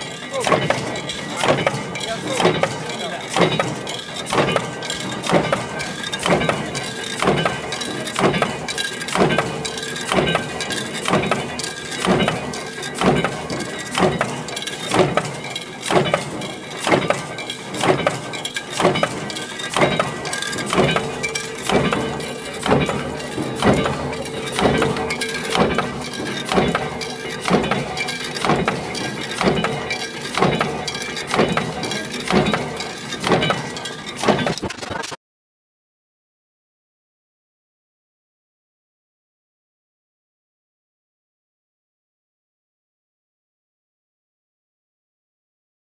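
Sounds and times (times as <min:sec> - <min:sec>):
power press metal strikes: 0:00.0 - 0:34.7
workshop machine noise: 0:00.0 - 0:35.2.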